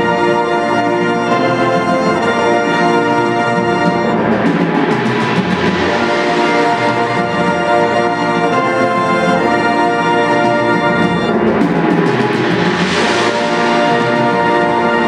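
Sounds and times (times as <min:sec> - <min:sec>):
wind band playing chords: 0:00.0 - 0:15.0.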